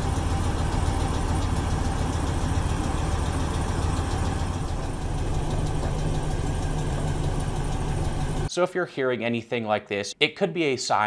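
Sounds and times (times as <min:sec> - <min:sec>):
car engine idling: 0:00.0 - 0:08.5
rapid ticking inside engine: 0:00.0 - 0:08.5.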